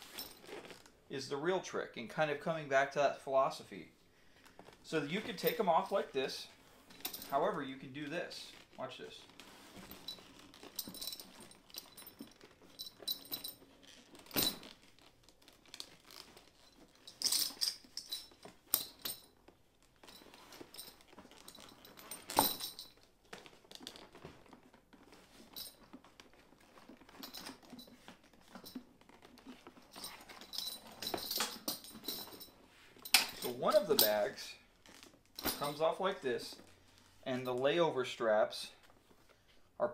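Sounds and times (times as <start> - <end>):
leather rustling: 0.0 - 1.0, 8.4 - 37.2
metal buckles jingling: 4.9 - 6.3, 6.9 - 7.7, 9.8 - 14.9, 15.8 - 19.4, 20.0 - 23.1, 25.4 - 26.0, 26.8 - 34.4, 35.3 - 36.0.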